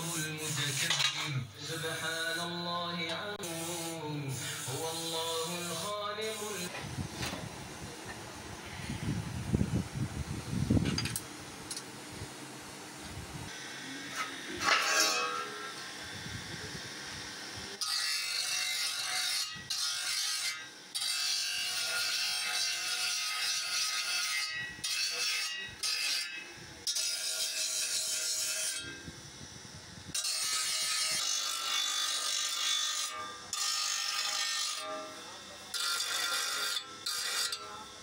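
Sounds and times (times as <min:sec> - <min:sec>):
metal grinding on abrasive wheel: 0:00.0 - 0:06.7, 0:14.1 - 0:16.0, 0:30.1 - 0:38.0.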